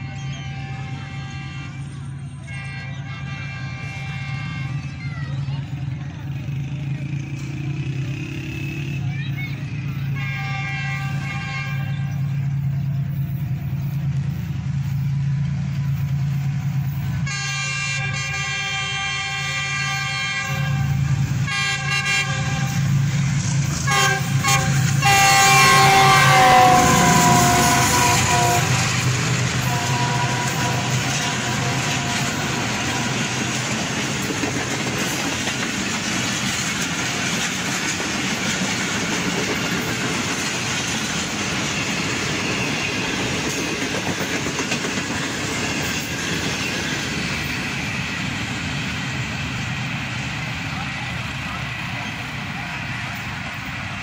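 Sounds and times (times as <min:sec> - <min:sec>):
locomotive chime horn: 0:00.0 - 0:05.0, 0:09.9 - 0:12.3, 0:17.2 - 0:23.0, 0:23.8 - 0:33.8
coaches clattering over rail joints: 0:22.5 - 0:54.0.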